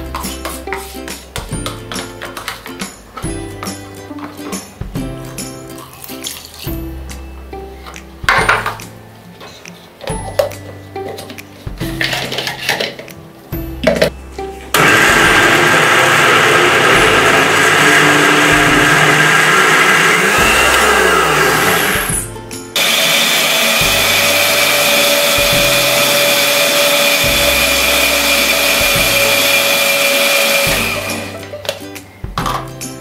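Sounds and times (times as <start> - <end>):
blender motor whine: 14.8 - 22.2, 22.8 - 31.4.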